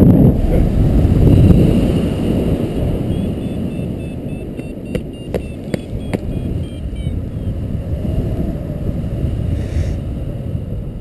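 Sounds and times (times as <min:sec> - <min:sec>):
wind rushing over microphone: 0:00.0 - 0:11.0
variometer beeps: 0:02.9 - 0:07.6.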